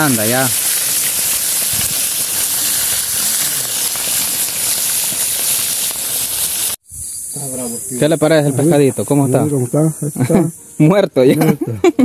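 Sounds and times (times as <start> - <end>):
fish deep-frying in hot oil: 0.0 - 7.5.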